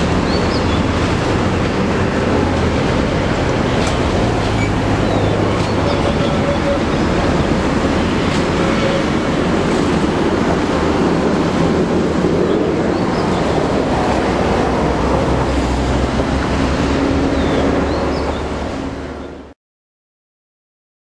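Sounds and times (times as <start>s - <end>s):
locomotive engine drone: 0.0s - 19.5s.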